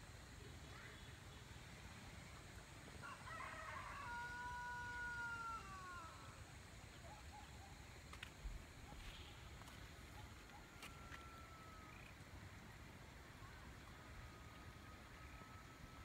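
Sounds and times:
faint rooster crowing: 3.0 - 6.8, 10.5 - 12.1.

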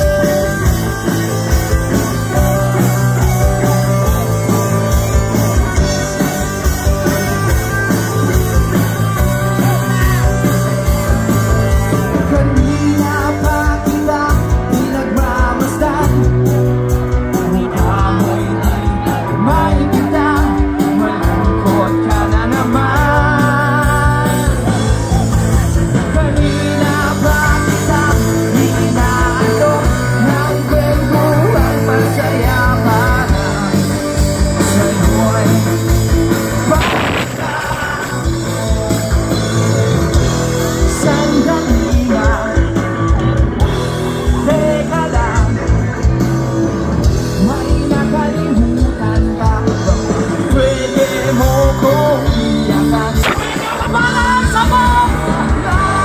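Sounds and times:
live rock band with singer: 0.0 - 56.0.

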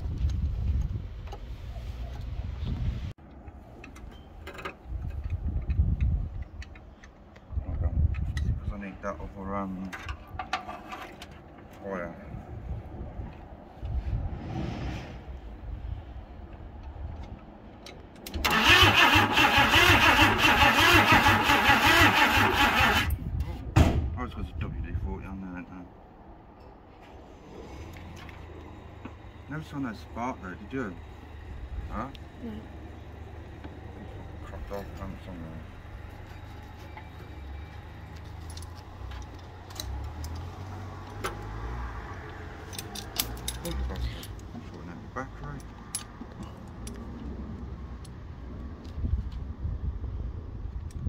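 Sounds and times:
low rumble: 12.2 - 16.8
engine cranking on starter motor: 18.3 - 23.2
starter whine: 18.3 - 23.2.

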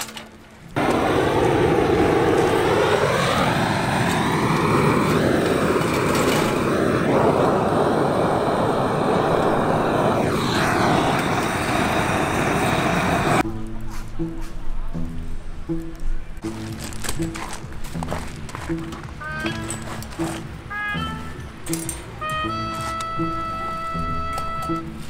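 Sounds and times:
gas torch roaring: 0.0 - 13.4.

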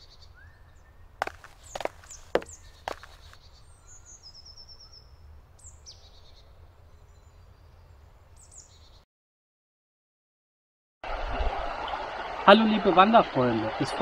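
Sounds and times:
birds chirping and trilling: 0.0 - 9.0.

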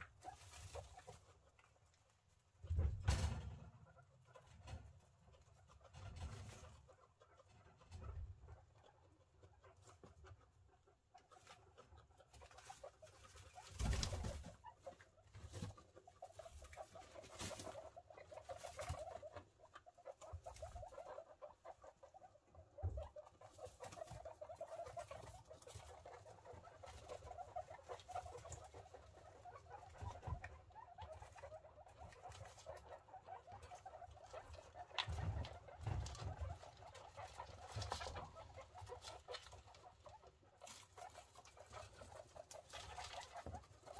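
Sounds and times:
guinea pigs rustling in bedding: 0.0 - 43.9.

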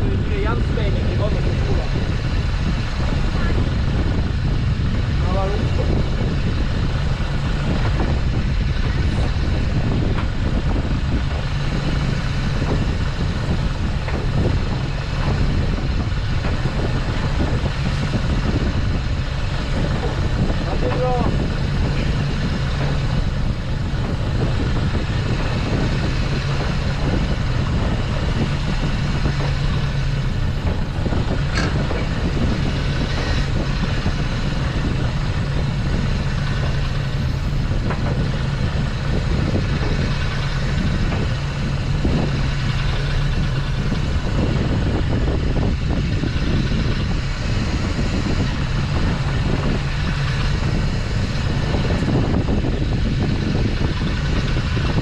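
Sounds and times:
boat engine humming: 0.0 - 55.0.

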